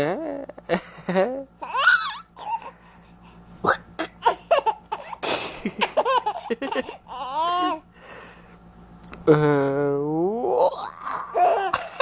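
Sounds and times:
baby laughing: 1.2 - 2.8, 3.7 - 7.9, 10.6 - 12.0
baby squealing: 1.6 - 2.7, 7.1 - 7.8, 10.6 - 11.8.

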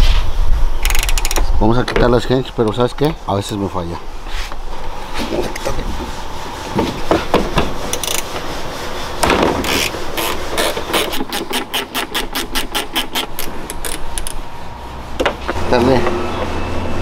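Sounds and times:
ratcheting wrench clicking: 0.8 - 1.5, 7.9 - 8.3, 9.7 - 14.4.

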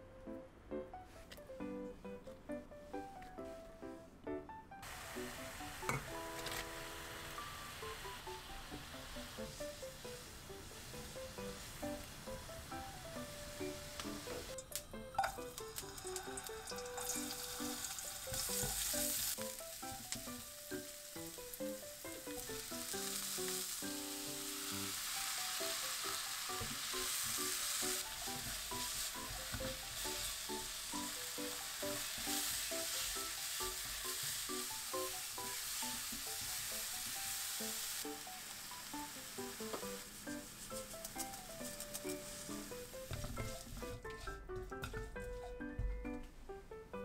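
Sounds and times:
food sizzling in hot oil: 4.8 - 44.0
light plinking background music: 5.7 - 8.8, 11.0 - 25.4, 39.4 - 47.0.

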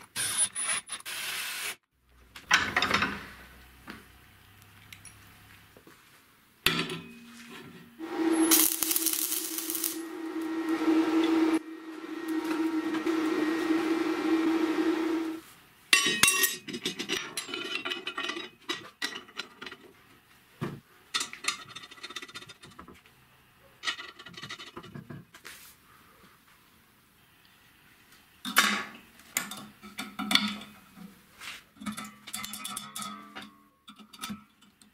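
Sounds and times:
small power tool running: 8.0 - 15.4
steel parts clinking and knocking: 16.0 - 19.8.

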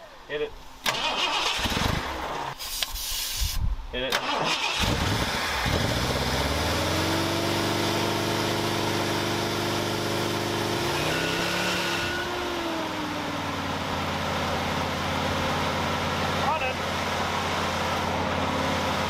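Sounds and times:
truck engine running: 11.5 - 19.0.

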